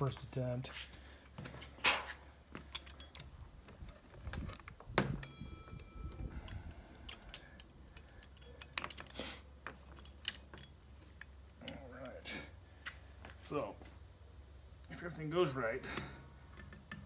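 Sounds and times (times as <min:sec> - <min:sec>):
steady low hum: 0:00.0 - 0:17.0
metal gears clicking and clinking: 0:09.8 - 0:12.2.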